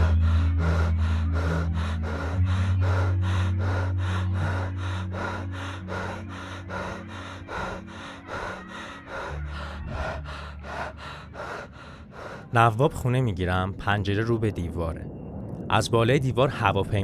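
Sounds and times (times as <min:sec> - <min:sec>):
fast rhythmic panting: 0:00.0 - 0:12.8.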